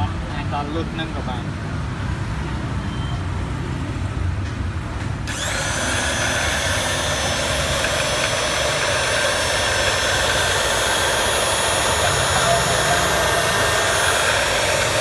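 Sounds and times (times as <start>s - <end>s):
cloth cutting machine whining: 5.3s - 15.0s.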